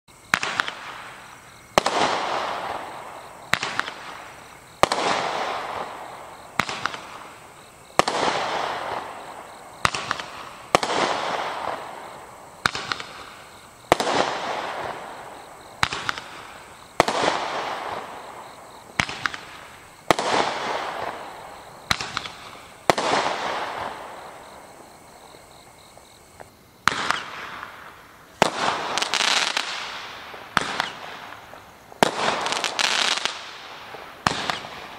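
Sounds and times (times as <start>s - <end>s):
crackling firework: 0.1s - 34.9s
roman candle shots popping: 0.3s - 24.2s.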